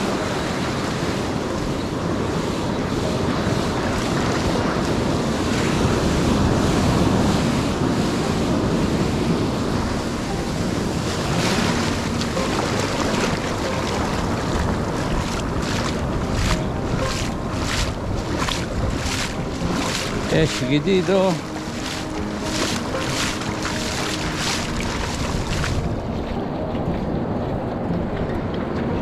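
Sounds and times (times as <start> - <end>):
ocean surf breaking: 0.0 - 29.0
wind buffeting microphone: 0.0 - 29.0.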